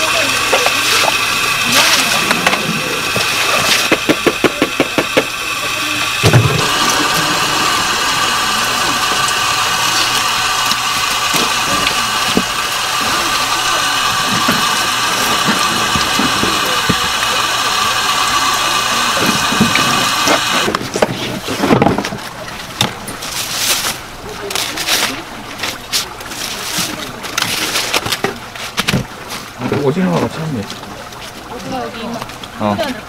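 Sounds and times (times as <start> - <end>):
motor running with high whine: 0.0 - 28.3.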